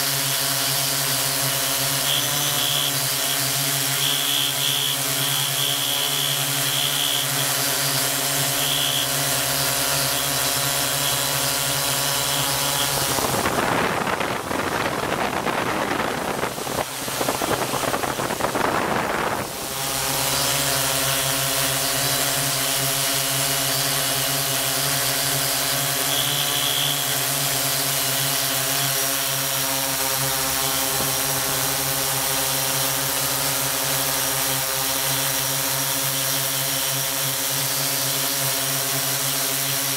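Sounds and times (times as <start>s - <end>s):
drone motors humming: 0.0s - 39.7s
rough rushing noise: 7.0s - 23.0s.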